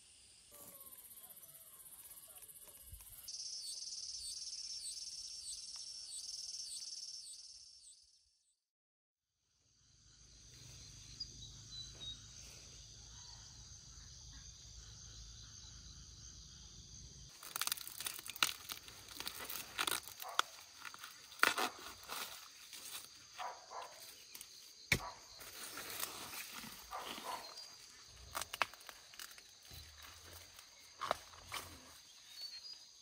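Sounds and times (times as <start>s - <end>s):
corn leaves rustling: 17.3s - 24.7s, 25.3s - 32.5s
corn ears snapping off: 17.4s - 23.1s, 28.3s - 30.0s.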